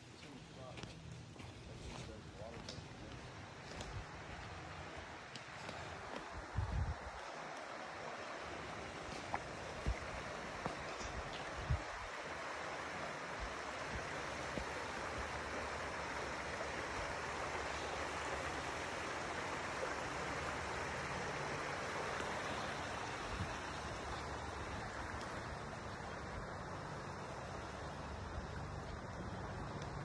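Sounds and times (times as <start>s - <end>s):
creek running over rocks: 0.2s - 30.0s.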